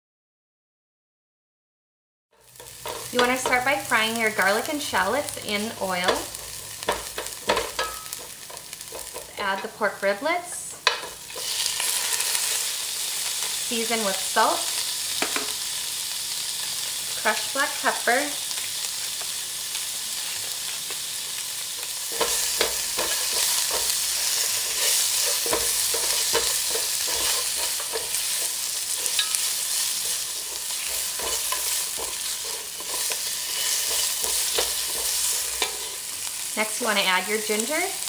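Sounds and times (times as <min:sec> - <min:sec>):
meat sizzling in hot oil: 0:02.4 - 0:38.0
utensil scraping against pot: 0:05.3 - 0:09.7, 0:10.7 - 0:13.6, 0:22.0 - 0:36.2.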